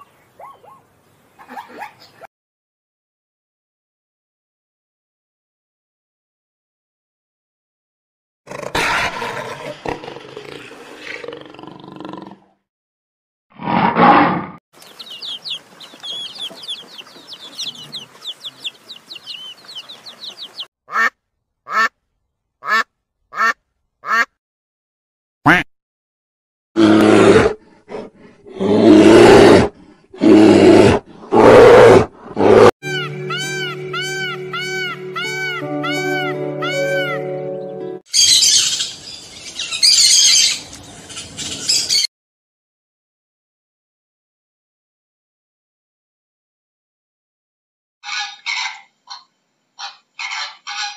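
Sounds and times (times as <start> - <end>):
fast high chirps: 14.8 - 20.7
loud drawn-out calls: 14.8 - 21.1
rough animal call: 26.8 - 32.7.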